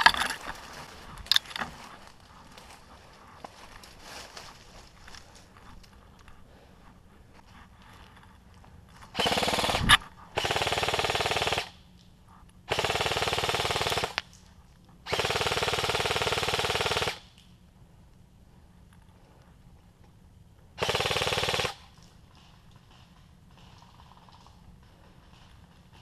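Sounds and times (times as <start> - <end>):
airsoft rifle firing bursts: 9.2 - 11.8, 12.7 - 14.2, 15.1 - 17.3, 20.8 - 22.0.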